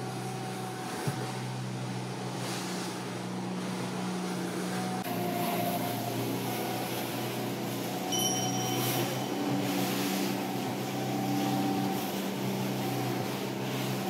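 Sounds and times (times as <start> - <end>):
boat engine droning: 0.0 - 14.0
wind and water hissing: 0.0 - 14.0
faint thin high tone: 8.1 - 9.6.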